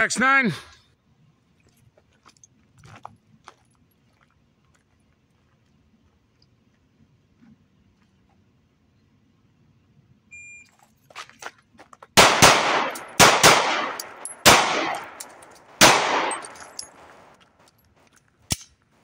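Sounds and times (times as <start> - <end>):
pistol shots: 12.2 - 17.3
gun clicks: 12.2 - 18.9.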